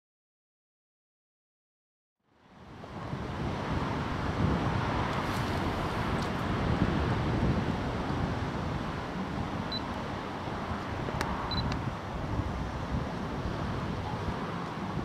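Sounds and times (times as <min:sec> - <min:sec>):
wind noise on microphone: 0:02.5 - 0:15.0
high camera beeps: 0:09.7 - 0:09.9, 0:11.5 - 0:11.7.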